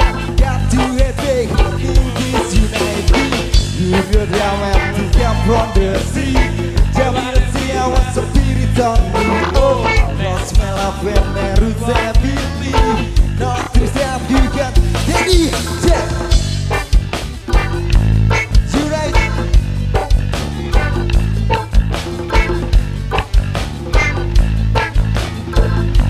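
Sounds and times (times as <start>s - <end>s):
person singing: 0.0s - 16.8s, 18.6s - 19.6s
live rock band playing: 0.0s - 26.0s.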